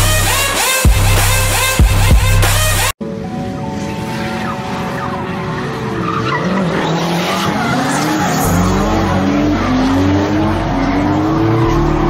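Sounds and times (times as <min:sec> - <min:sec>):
car engines revving: 0:03.1 - 0:12.0.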